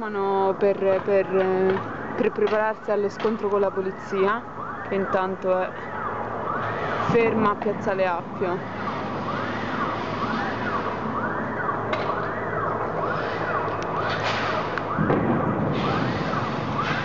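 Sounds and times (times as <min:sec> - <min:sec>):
siren wailing: 0:00.0 - 0:17.0
street noise: 0:00.0 - 0:17.0
sharp bangs: 0:08.6 - 0:17.0.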